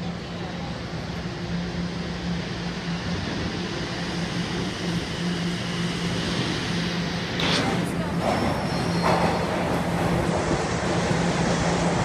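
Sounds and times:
subway train rumbling in: 0.0s - 12.0s.

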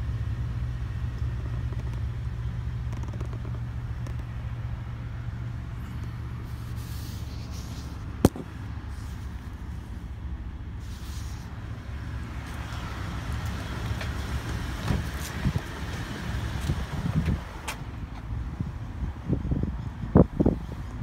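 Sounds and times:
pickup truck idling: 0.0s - 19.0s.

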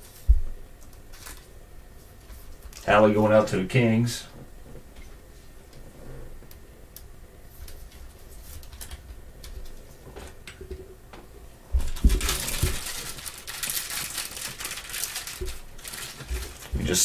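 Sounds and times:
rustling: 11.5s - 17.0s.

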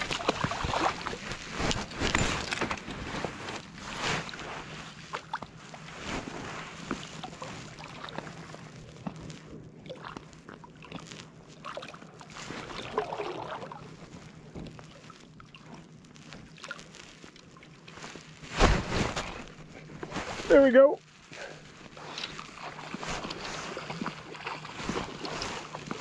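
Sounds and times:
water lapping against float tube: 0.0s - 18.5s, 21.3s - 26.0s.

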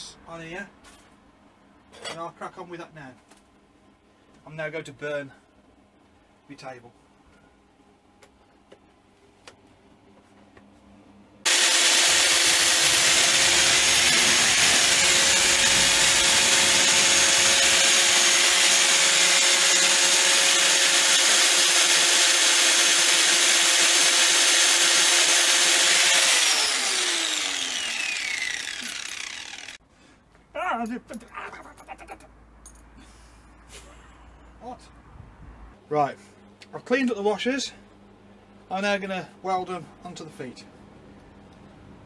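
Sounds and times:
angle grinder whining: 11.5s - 29.8s.

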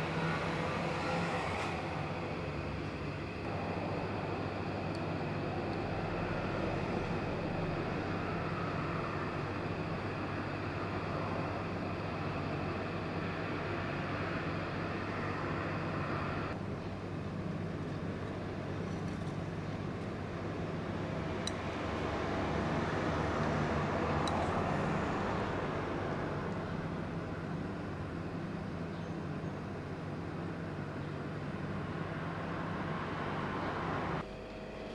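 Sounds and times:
low hum: 0.0s - 17.0s
ambient rumble and hiss: 0.0s - 34.9s.

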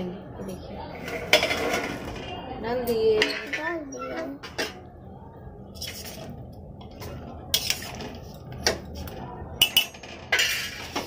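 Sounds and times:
metal spoon scraping cookware: 7.5s - 8.5s.

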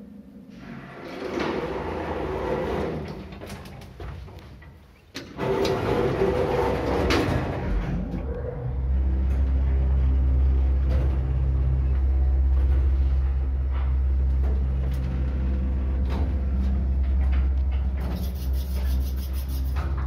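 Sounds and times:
sliding elevator doors rattling shut: 0.6s - 18.1s
elevator motor humming: 5.3s - 18.8s.

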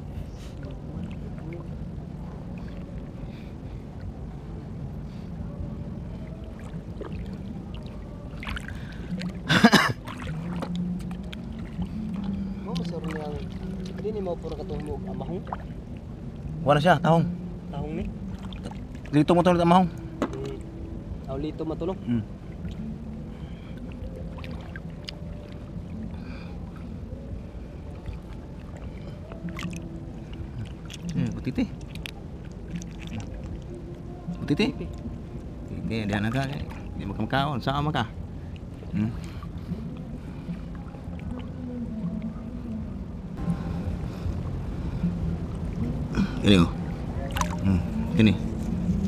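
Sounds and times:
water sloshing and trickling: 0.0s - 49.0s
loud water splash: 46.0s - 47.9s.

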